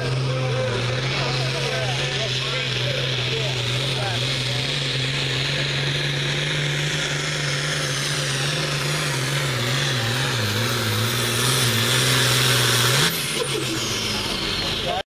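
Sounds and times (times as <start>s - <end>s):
tractor diesel engine revving high: 0.0s - 15.0s.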